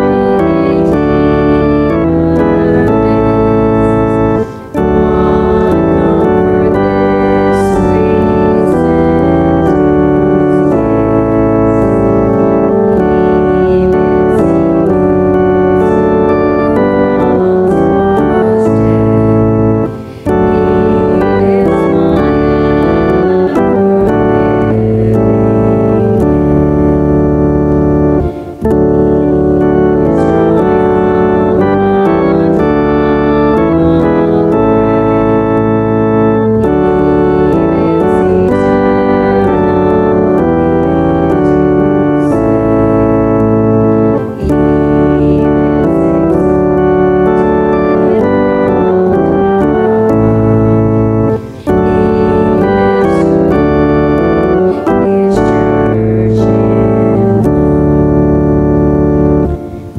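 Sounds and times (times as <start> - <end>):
church organ playing chords: 0.0 - 59.9.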